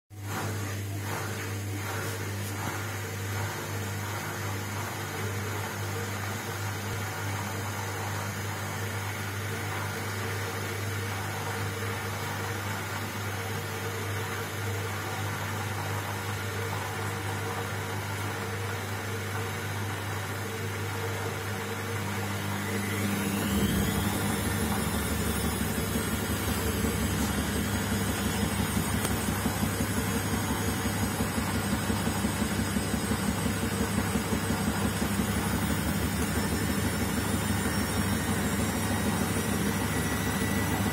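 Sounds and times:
washing machine running: 0:00.1 - 0:40.9.

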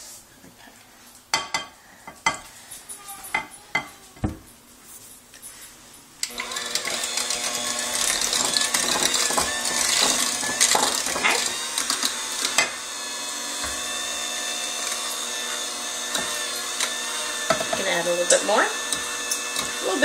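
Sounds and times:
electric mixer motor running: 0:06.3 - 0:20.0
beaters clattering against bowl: 0:08.0 - 0:12.8.

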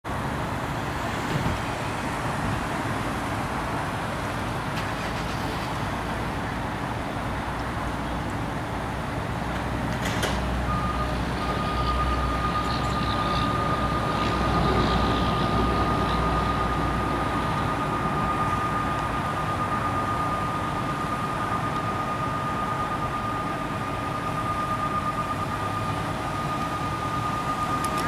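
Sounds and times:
diesel engine idling: 0:00.1 - 0:28.0
high electronic warning tone: 0:10.7 - 0:28.0.

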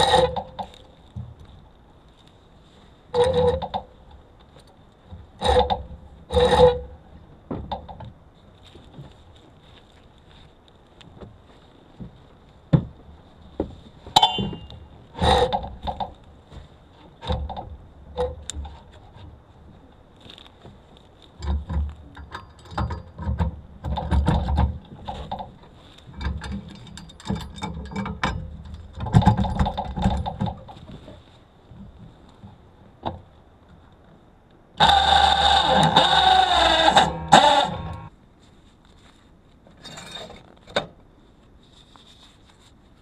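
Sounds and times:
metal knocks and rattling: 0:12.0 - 0:19.2, 0:21.4 - 0:33.3
metallic ring: 0:14.2 - 0:14.9.

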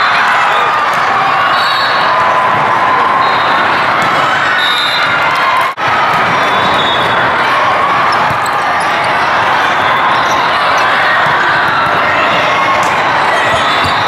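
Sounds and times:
many voices in echoing hall: 0:00.0 - 0:14.0
volleyballs thudding: 0:10.7 - 0:14.0.

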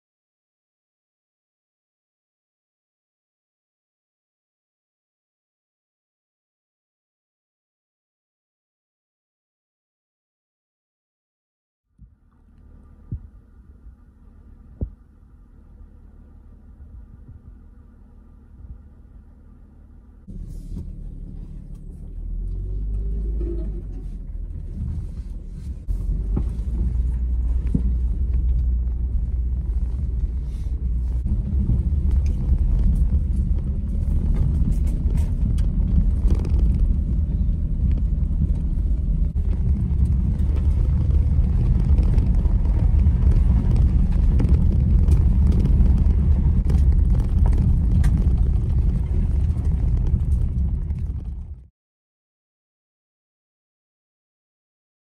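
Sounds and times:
vehicle engine and tyres rumbling: 0:11.9 - 0:51.7
small rattles and knocks: 0:31.0 - 0:51.6.

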